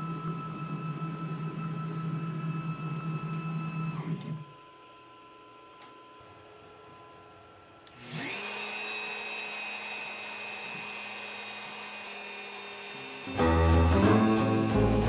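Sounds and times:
router spindle whining: 0:07.9 - 0:15.0
guitar and string music: 0:13.3 - 0:15.0.

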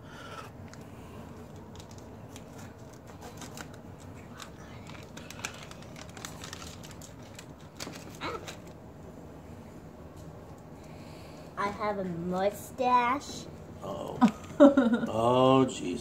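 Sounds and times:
plastic packaging crinkling: 0:01.4 - 0:08.8.

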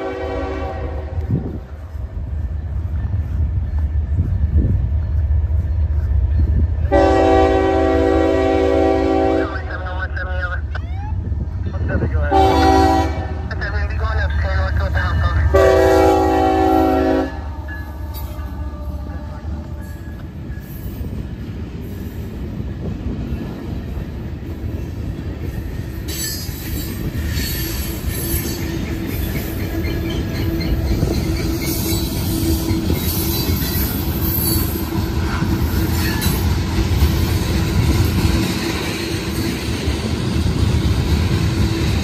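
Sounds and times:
train wheels rumbling on rails: 0:00.0 - 0:42.0
wheel squeal: 0:26.1 - 0:34.9.

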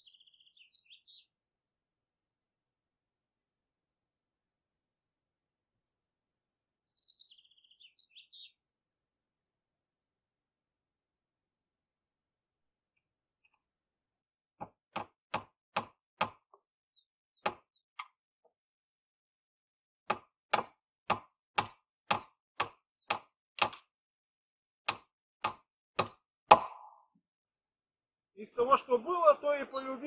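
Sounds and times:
hammer nailing wooden board: 0:14.6 - 0:16.6, 0:17.4 - 0:17.7, 0:20.1 - 0:23.9, 0:24.8 - 0:26.9.

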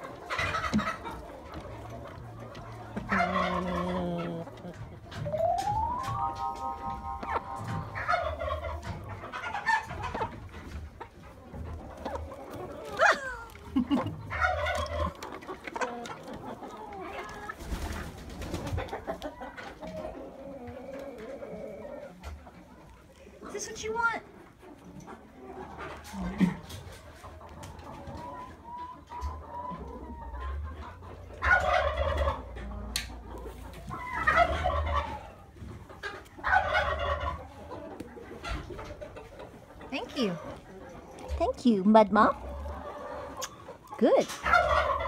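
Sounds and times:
poultry calling: 0:00.0 - 0:10.5
chickens clucking: 0:00.0 - 0:45.0.

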